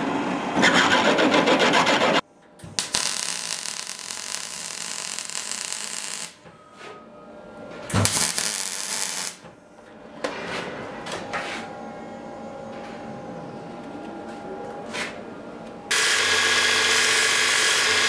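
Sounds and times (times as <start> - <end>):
welder arc crackling: 2.8 - 6.4, 8.0 - 9.4, 15.9 - 18.0.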